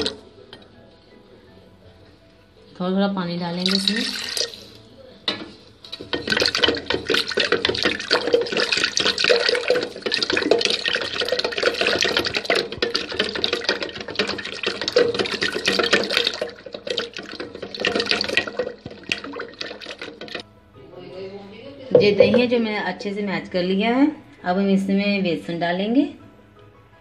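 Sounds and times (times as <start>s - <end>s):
liquid sloshing and swishing: 3.6s - 4.8s, 5.8s - 20.4s
wooden churner clattering: 5.3s - 20.4s.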